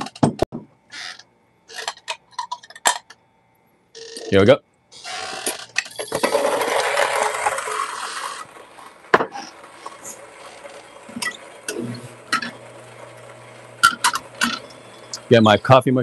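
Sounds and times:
burr grinder grinding coffee beans: 0:05.0 - 0:16.0.

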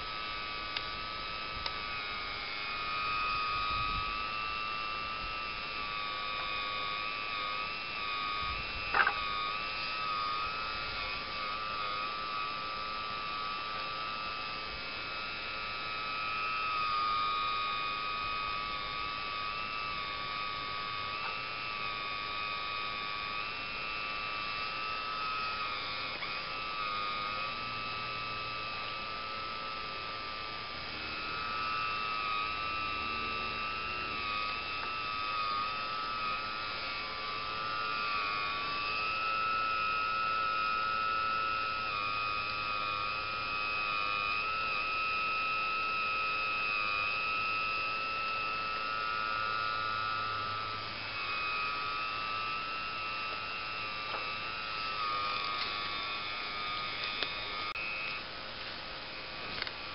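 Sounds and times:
electric motors whining: 0:00.0 - 0:59.9.

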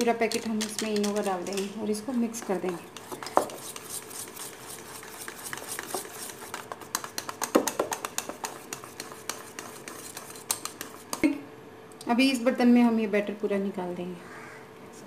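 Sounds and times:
whisk clicking against steel bowl: 0:00.0 - 0:01.7, 0:02.4 - 0:11.2.

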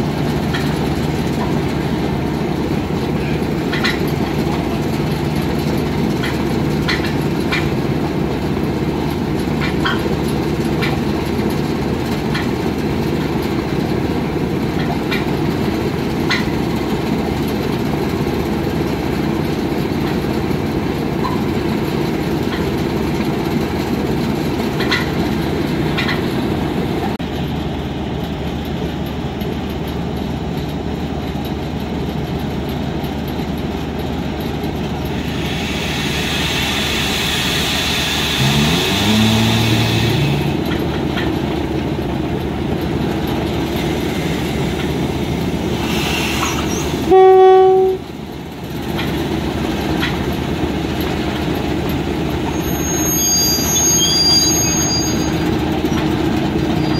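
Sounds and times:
diesel locomotive engine running: 0:00.0 - 0:56.9
air hiss: 0:35.2 - 0:40.6, 0:45.7 - 0:47.1
locomotive horn blast: 0:46.7 - 0:48.1.

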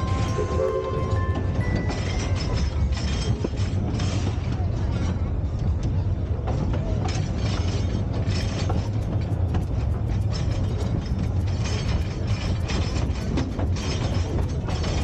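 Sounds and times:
train wheels rumbling on rails: 0:00.0 - 0:15.0
sharp clicks and rattles: 0:06.5 - 0:15.0.

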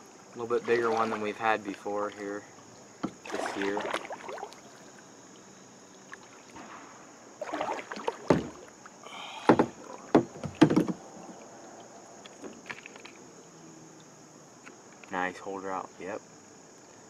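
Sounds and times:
water splashing: 0:00.4 - 0:13.2
fish thrashing: 0:03.0 - 0:04.8, 0:07.4 - 0:11.1
knocks on plastic kayak hull: 0:08.2 - 0:08.6, 0:09.5 - 0:11.0.

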